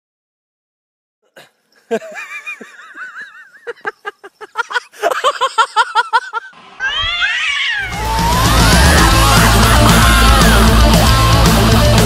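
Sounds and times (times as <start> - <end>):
cats yowling: 6.8 - 11.0
loud rock music: 7.9 - 12.0.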